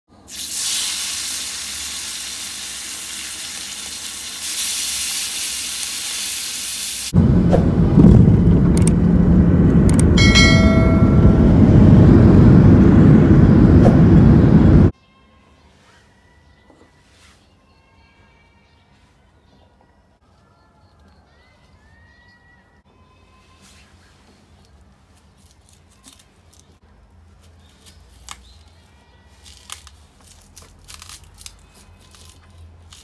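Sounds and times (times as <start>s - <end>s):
meat sizzling in oil: 0.3s - 7.1s
jet airliner cabin rumble: 7.2s - 14.9s
chiming tone: 10.2s - 12.2s.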